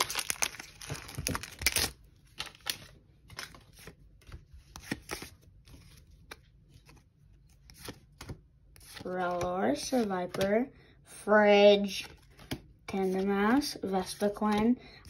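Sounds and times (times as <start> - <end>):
foil wrapper crinkling and tearing: 0.0 - 3.5
cards clicking and rustling: 0.0 - 10.6, 11.8 - 14.8.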